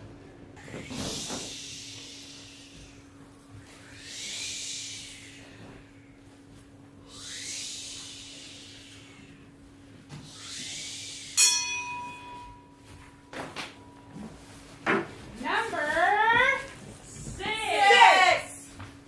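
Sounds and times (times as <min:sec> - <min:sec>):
bell ringing: 0:11.4 - 0:13.2.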